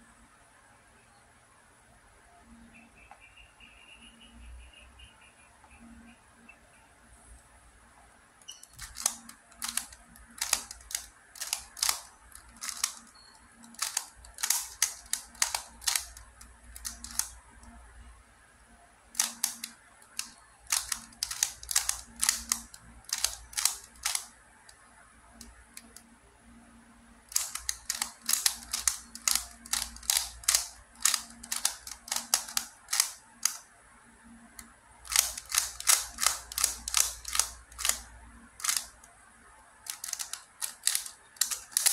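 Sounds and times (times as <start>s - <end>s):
puzzle cube layers clicking: 8.4s - 17.7s, 19.2s - 24.8s, 27.3s - 33.6s, 34.6s - 39.1s, 39.9s - 41.9s.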